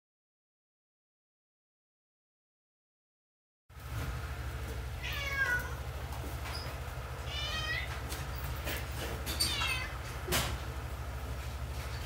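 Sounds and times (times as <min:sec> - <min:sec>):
low machine hum: 0:03.7 - 0:12.0
cat meowing: 0:05.0 - 0:05.8, 0:07.2 - 0:08.0, 0:09.5 - 0:10.0.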